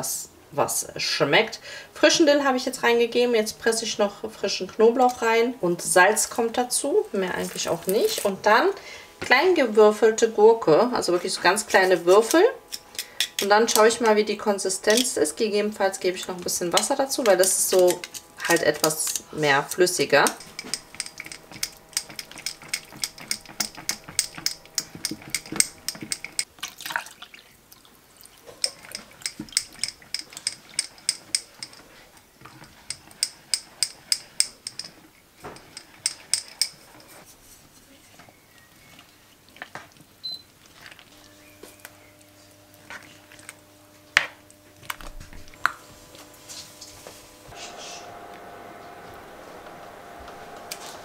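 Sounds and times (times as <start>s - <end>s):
wet stirring: 16.1s - 37.7s
fork clicking against wooden bowl: 20.2s - 26.5s, 28.6s - 31.8s, 32.6s - 35.0s.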